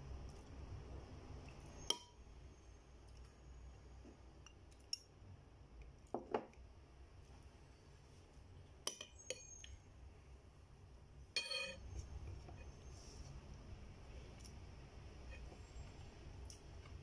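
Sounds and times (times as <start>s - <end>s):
cutlery clinking against plate: 11.4s - 11.8s.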